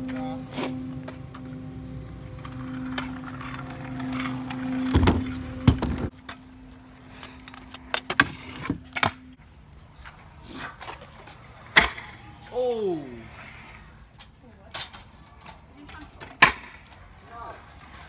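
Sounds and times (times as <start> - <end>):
steady low hum: 0.0 - 9.4
scooter wheels knocking and clacking: 2.3 - 6.4, 14.2 - 17.1.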